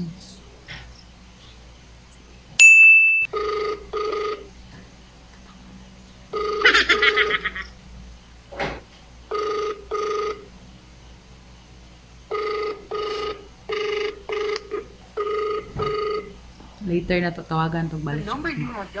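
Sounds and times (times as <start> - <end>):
phone ringback tone: 3.0 - 4.5, 6.3 - 7.4, 9.3 - 10.5, 12.3 - 16.4.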